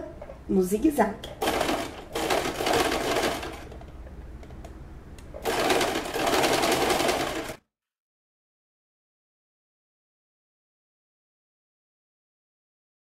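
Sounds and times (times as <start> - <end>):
sewing machine stitching: 1.4 - 3.8, 5.4 - 7.6.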